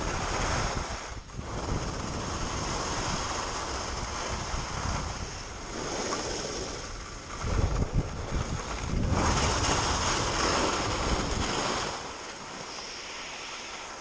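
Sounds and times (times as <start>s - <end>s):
wind buffeting microphone: 0.0s - 12.7s
skis hissing on snow: 12.5s - 14.0s.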